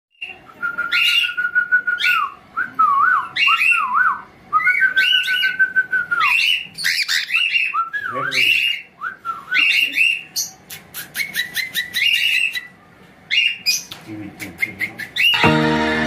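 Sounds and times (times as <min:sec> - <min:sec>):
cockatiel chirping: 0:06.2 - 0:08.8, 0:09.6 - 0:12.7.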